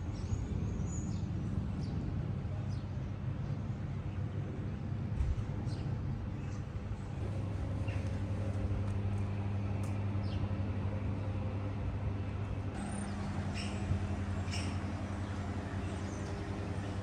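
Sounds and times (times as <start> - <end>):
vehicle engine humming: 6.8 - 17.0
bird chirps: 12.8 - 16.8.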